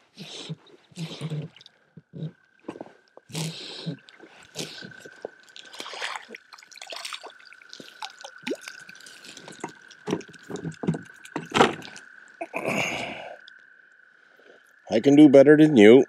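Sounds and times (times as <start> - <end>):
water splashing and dripping: 0.3 - 12.7
handling clicks and knocks: 9.5 - 12.0.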